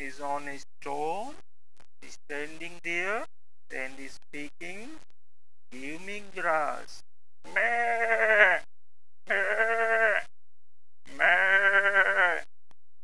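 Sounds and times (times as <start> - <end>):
person imitating goat bleat: 7.5 - 8.7, 9.3 - 10.3, 11.1 - 12.5.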